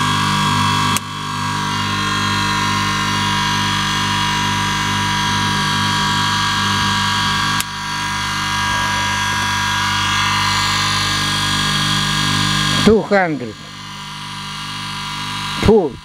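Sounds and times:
electric motor whine and hum: 0:00.0 - 0:16.0.

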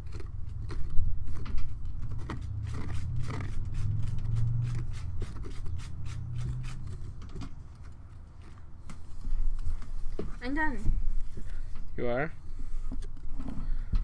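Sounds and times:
knife scraping pumpkin: 0:00.0 - 0:10.6.

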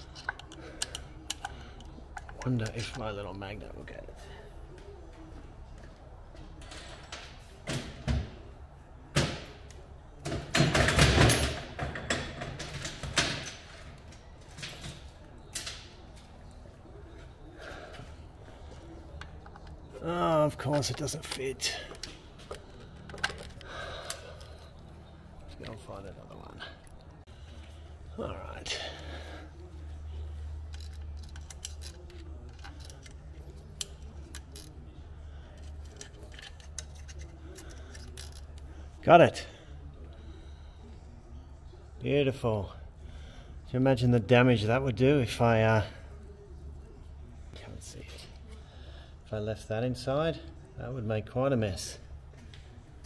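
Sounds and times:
metal tool clicks and scrapes: 0:00.0 - 0:02.8, 0:30.6 - 0:34.8, 0:35.6 - 0:38.7
hand tools knocking and clattering: 0:10.2 - 0:13.7.

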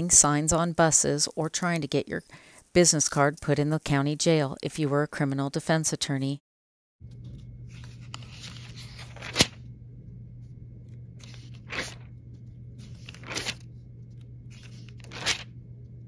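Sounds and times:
low hum: 0:07.0 - 0:16.0
pages being turned: 0:07.1 - 0:09.6, 0:11.2 - 0:15.6.

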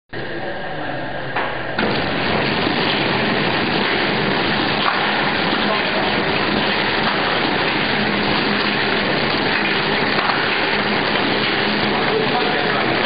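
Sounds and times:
machine rushing noise: 0:01.8 - 0:13.0.

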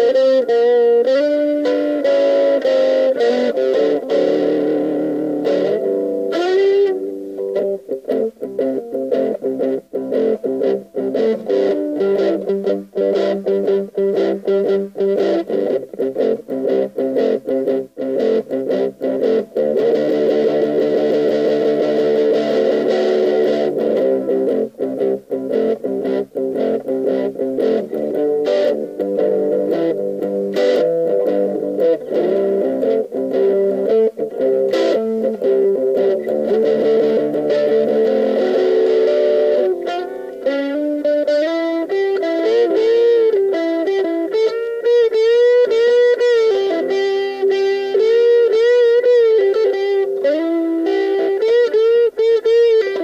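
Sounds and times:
distorted electric guitar riffs: 0:00.0 - 0:53.0.

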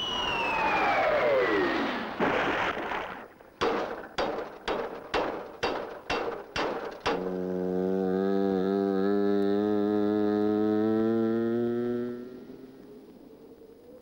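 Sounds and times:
cartoon whistle sliding down: 0:00.0 - 0:02.0
crash: 0:01.8 - 0:05.1
hammer striking metal anvil: 0:03.6 - 0:07.3.

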